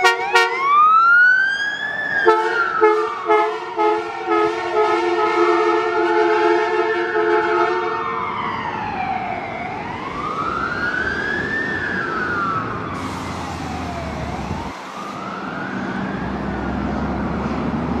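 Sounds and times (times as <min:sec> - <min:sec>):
ambulance siren wailing: 0:00.0 - 0:18.0
road traffic rumble: 0:00.0 - 0:18.0.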